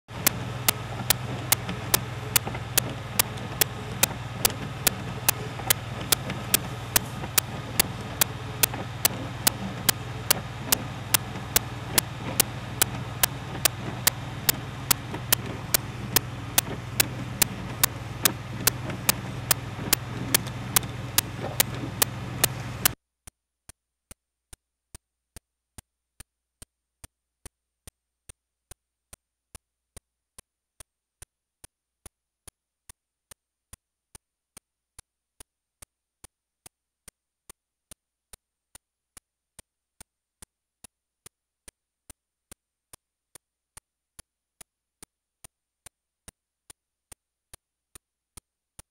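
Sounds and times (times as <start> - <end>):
sharp clicks: 0.1 - 23.0.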